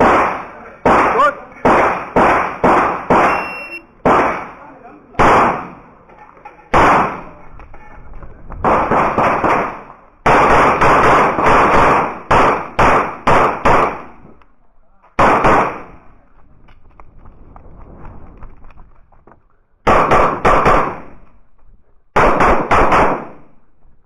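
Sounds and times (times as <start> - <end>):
pistol shots with echo: 0.0 - 5.9, 6.7 - 7.4, 8.6 - 14.2, 15.2 - 16.0, 19.9 - 21.2, 22.2 - 23.6.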